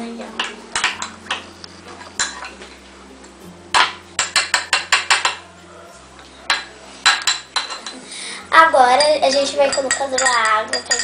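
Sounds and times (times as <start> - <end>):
metal spoon clinking against cup: 8.9 - 11.0.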